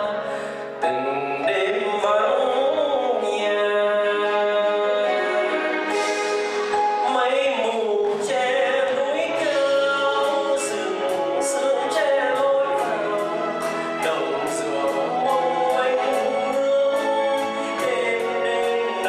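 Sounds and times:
man singing ballad with band: 0:00.0 - 0:19.0.

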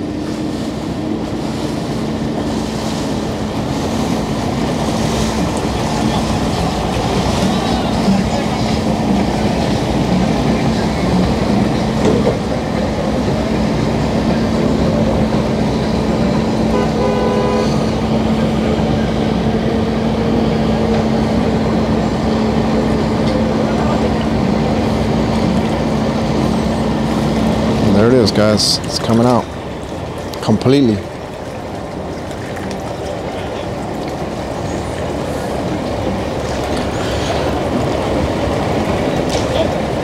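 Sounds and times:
truck engine humming: 0:00.0 - 0:40.0
horn toot: 0:16.7 - 0:17.9.

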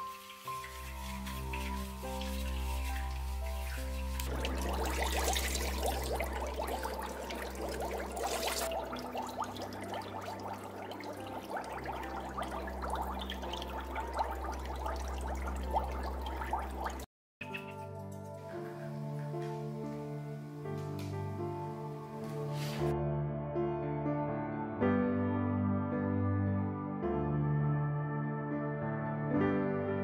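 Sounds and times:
bathwater splashing and trickling: 0:00.0 - 0:18.4.

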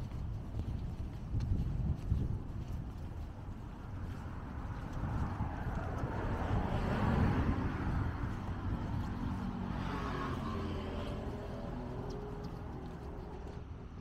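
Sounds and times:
car passing by: 0:04.4 - 0:13.6.

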